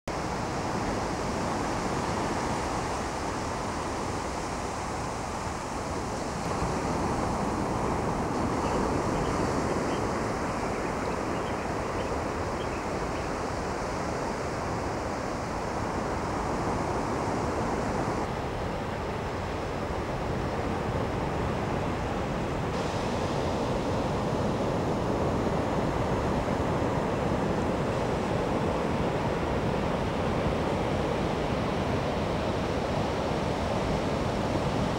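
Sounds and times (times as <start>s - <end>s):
waves breaking on beach: 0.1s - 34.9s.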